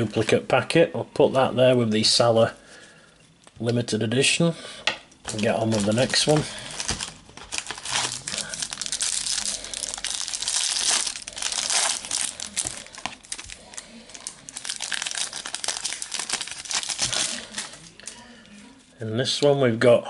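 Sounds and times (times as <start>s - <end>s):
foil wrapper crinkling: 5.3s - 18.2s.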